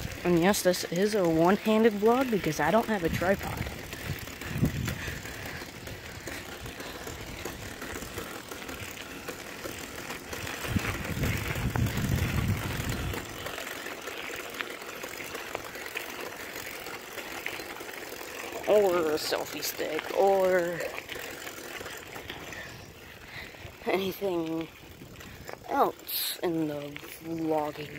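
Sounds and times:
bicycle chain clicking: 0.0s - 27.9s
wind on microphone: 3.1s - 5.3s, 10.6s - 13.4s.

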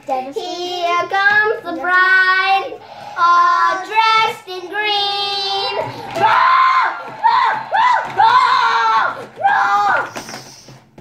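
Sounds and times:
child singing wordless tune: 0.0s - 5.9s.

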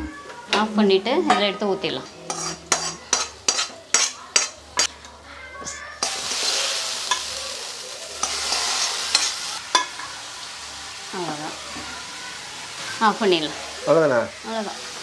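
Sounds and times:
hot oil sizzling: 0.5s - 15.0s
metal spoon scraping metal pan: 1.3s - 5.0s, 6.0s - 7.3s, 8.2s - 10.1s.

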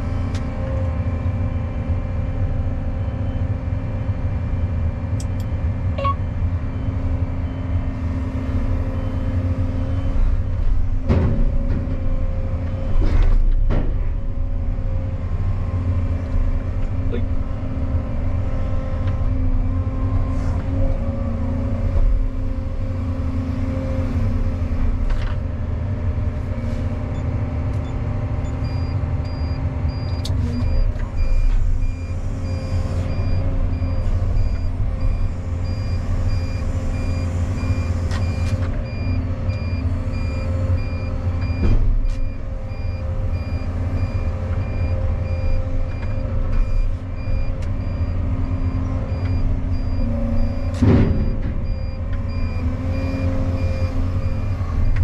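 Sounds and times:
excavator engine running: 0.0s - 55.0s
truck reversing alarm beeps: 6.0s - 10.7s, 26.4s - 55.0s
machine clunks: 50.6s - 52.3s.

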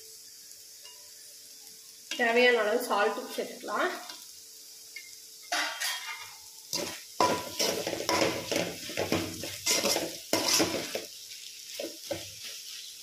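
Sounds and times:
food sizzling: 0.0s - 13.0s
metal spoon scraping frying pan: 5.4s - 11.1s.

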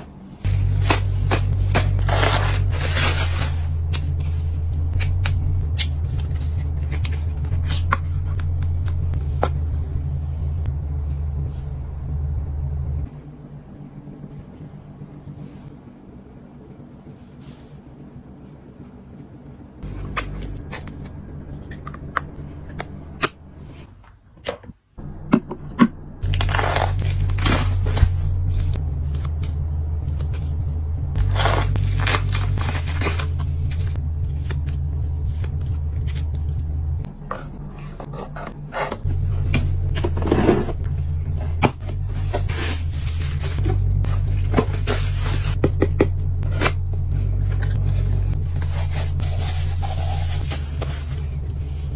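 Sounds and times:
low steady hum: 0.0s - 51.9s
bubble wrap crinkling: 0.5s - 4.3s, 26.2s - 28.7s, 31.2s - 33.9s, 48.4s - 51.4s.

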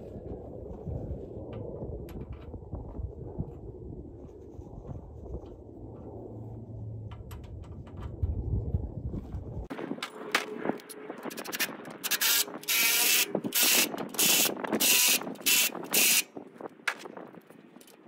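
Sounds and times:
impact driver tightening bolts: 11.3s - 16.2s.

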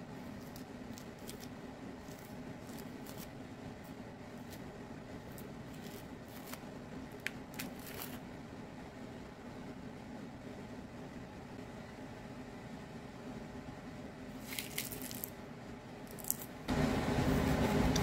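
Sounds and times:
steady low hum: 0.0s - 18.0s
orange peel tearing and crackling: 0.3s - 3.3s, 7.2s - 8.2s, 14.4s - 15.3s, 16.1s - 16.5s.

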